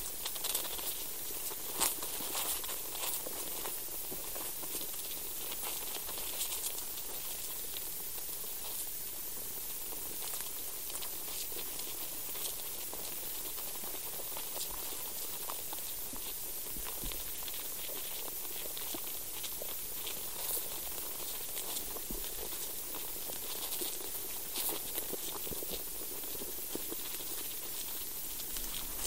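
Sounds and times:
steady soil hiss: 0.0s - 29.0s
tiny clicks and crackles in soil: 0.0s - 29.0s.

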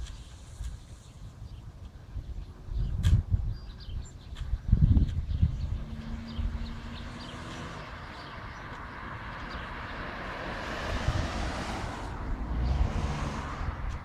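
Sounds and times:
car driving past: 5.6s - 14.0s.

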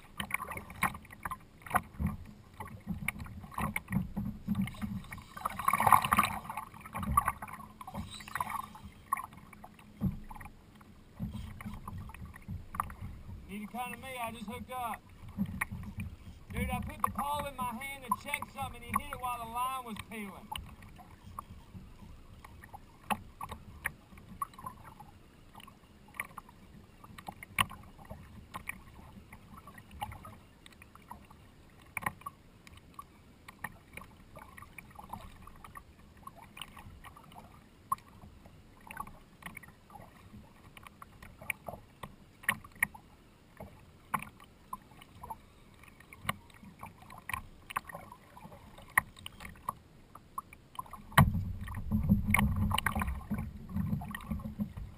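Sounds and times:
low steady rumble: 0.0s - 26.1s, 49.8s - 54.9s
water slapping against kayak hull: 0.0s - 43.0s, 50.4s - 54.9s.

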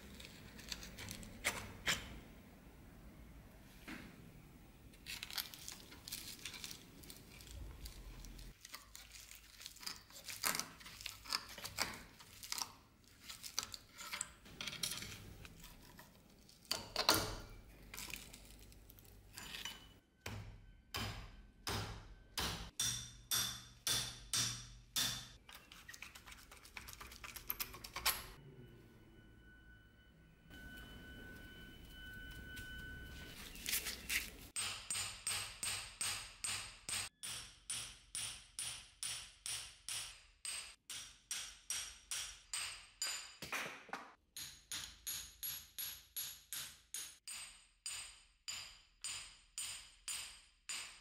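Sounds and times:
metal clanking and scraping: 13.8s - 18.5s, 19.2s - 20.0s.

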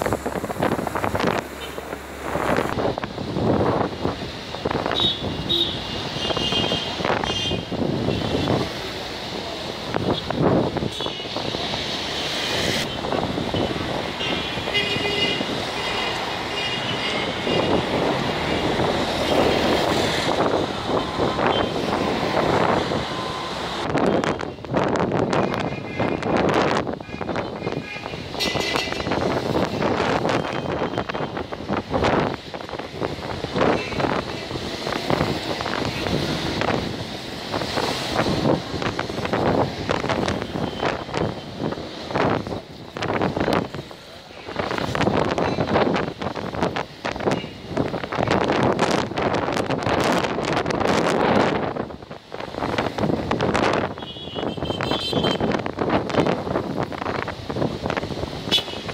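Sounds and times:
wind buffeting microphone: 17.1s - 58.9s.

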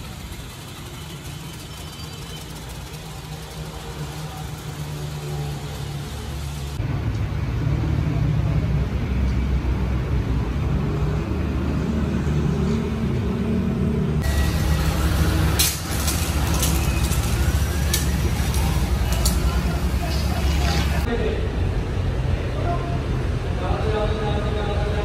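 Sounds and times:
pressure washer spraying: 0.0s - 6.8s, 14.2s - 21.1s
motor droning: 14.2s - 21.1s.

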